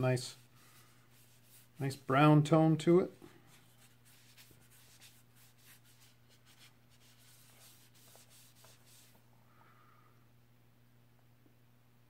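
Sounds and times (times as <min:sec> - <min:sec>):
cloth rag rubbing wood: 0:00.0 - 0:09.2
steady low hum: 0:00.0 - 0:12.0.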